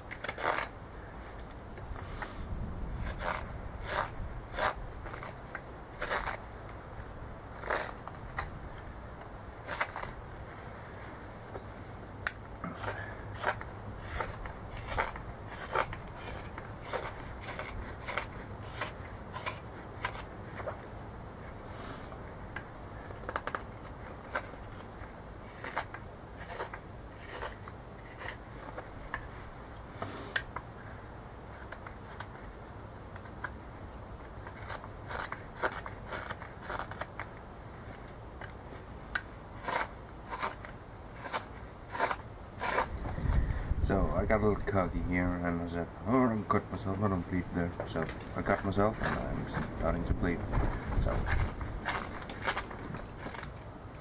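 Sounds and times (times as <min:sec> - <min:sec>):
knife slicing wood shavings: 0:12.7 - 0:20.2.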